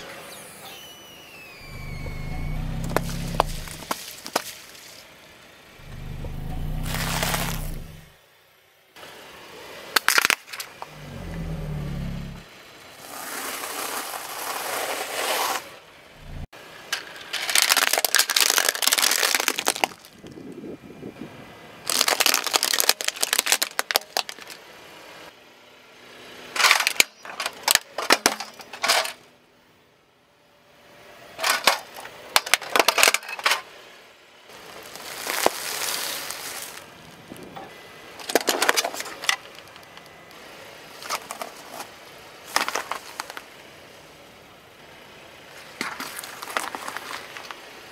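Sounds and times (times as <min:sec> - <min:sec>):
plastic toys crunching under tyre: 0:01.6 - 0:04.9, 0:05.8 - 0:08.1, 0:10.0 - 0:12.4, 0:17.0 - 0:20.6, 0:21.9 - 0:24.6, 0:34.6 - 0:37.5, 0:38.2 - 0:40.2, 0:41.0 - 0:43.5, 0:45.6 - 0:47.6.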